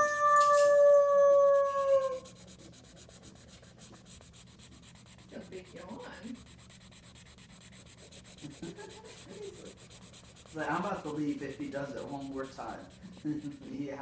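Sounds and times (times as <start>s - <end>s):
dog howling: 0.0s - 2.4s
marker scratching on paper: 1.3s - 14.0s.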